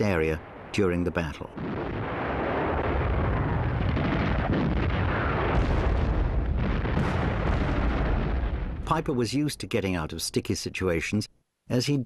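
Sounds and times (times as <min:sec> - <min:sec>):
artillery fire and explosions: 0:00.4 - 0:09.2.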